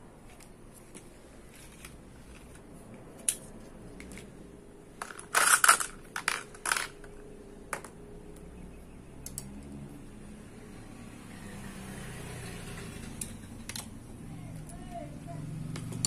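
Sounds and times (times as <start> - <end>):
plastic toy parts clicking and rattling: 3.2 - 4.3, 5.0 - 8.0, 13.2 - 14.9.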